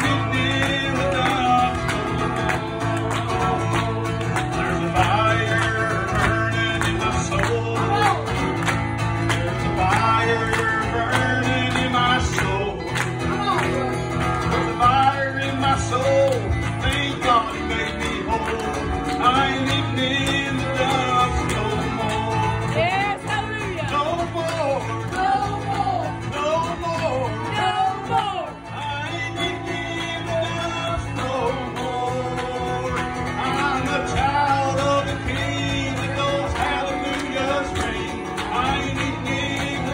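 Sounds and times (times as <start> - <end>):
acoustic guitar strumming: 0.0 - 39.9
man singing: 0.0 - 39.9.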